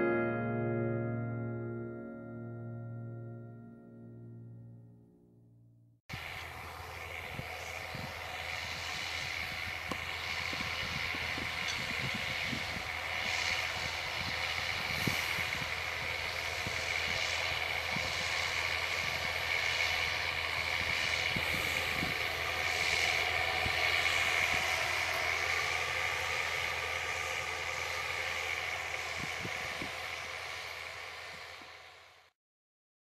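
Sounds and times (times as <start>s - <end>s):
constant whine: 0.0s - 32.3s
planter machinery noise: 6.1s - 32.2s
tractor diesel engine under load: 6.1s - 32.3s.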